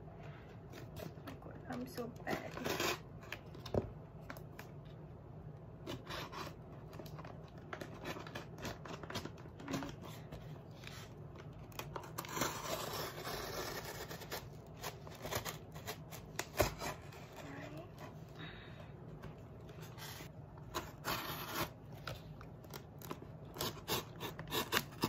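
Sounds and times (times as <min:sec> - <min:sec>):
box cutter slitting packing tape: 0:23.5 - 0:25.0.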